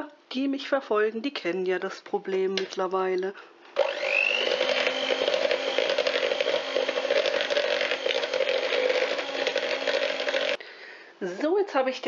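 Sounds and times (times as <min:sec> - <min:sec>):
electric hand mixer running: 0:03.8 - 0:10.6.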